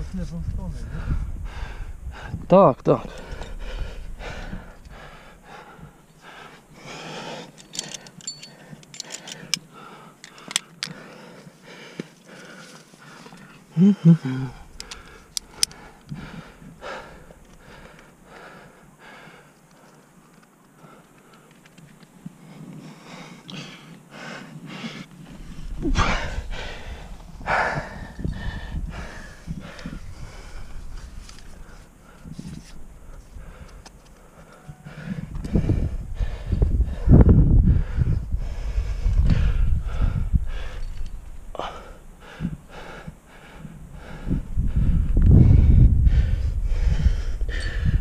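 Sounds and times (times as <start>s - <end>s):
person breathing with effort: 0.8s - 2.4s, 3.1s - 21.6s, 22.3s - 48.0s
sharp clicks: 14.8s - 16.2s.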